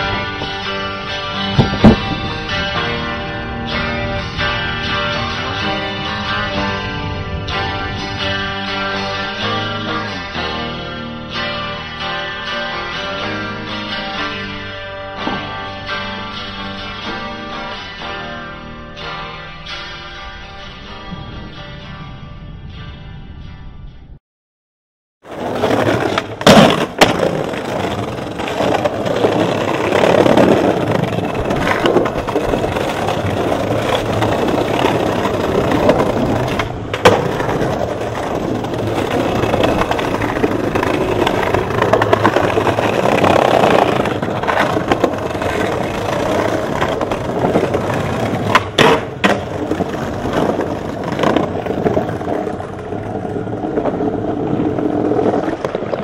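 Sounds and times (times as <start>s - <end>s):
skateboard wheels rolling on brick: 0.0s - 17.7s, 25.2s - 56.0s
skateboard clacking on ground: 15.1s - 17.6s, 25.3s - 56.0s.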